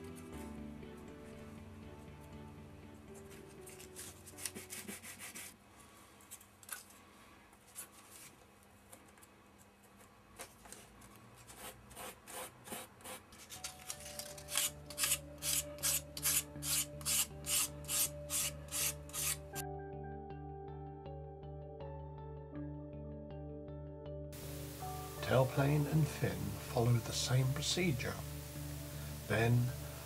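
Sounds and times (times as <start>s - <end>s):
sandpaper rubbing on wood: 4.3s - 5.6s, 14.5s - 19.6s.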